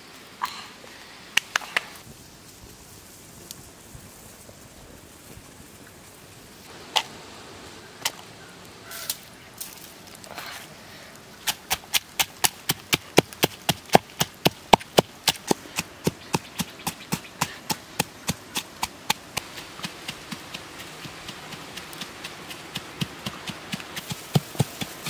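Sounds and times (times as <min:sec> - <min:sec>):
pestle pounding in wooden mortar: 0:11.5 - 0:25.0.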